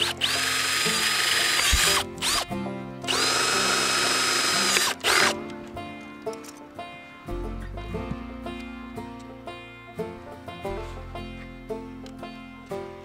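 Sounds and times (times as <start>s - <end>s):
cordless drill motor whine: 0.0s - 2.5s, 3.1s - 5.4s
drill boring through plastic: 0.0s - 2.5s, 3.1s - 5.4s.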